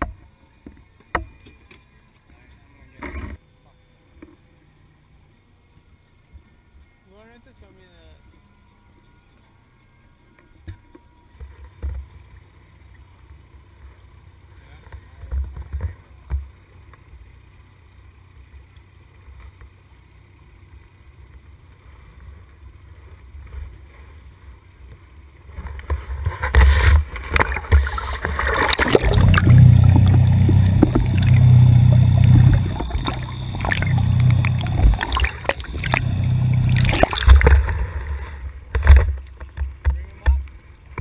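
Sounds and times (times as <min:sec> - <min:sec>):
fish splashing in water: 0:26.6 - 0:38.4
net sweeping through water: 0:26.7 - 0:38.0.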